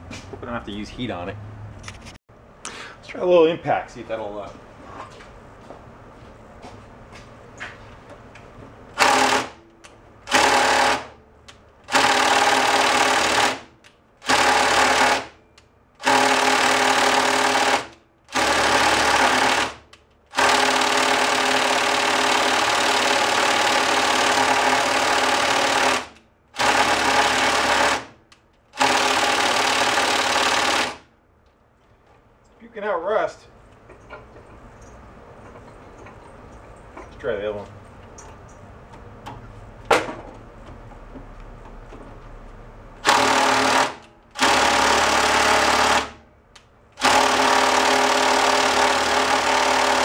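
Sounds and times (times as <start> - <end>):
impact driver hammering: 9.0 - 11.2, 11.8 - 15.4, 16.0 - 28.2, 28.8 - 31.1, 43.0 - 46.2, 47.0 - 50.0.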